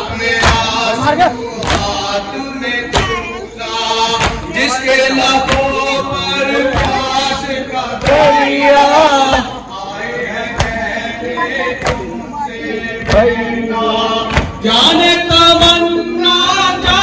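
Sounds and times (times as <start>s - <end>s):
crowd of men chanting: 0.0s - 17.0s
hands slapping chests: 1.6s - 1.9s, 4.2s - 4.5s, 5.4s - 5.7s, 11.8s - 12.1s.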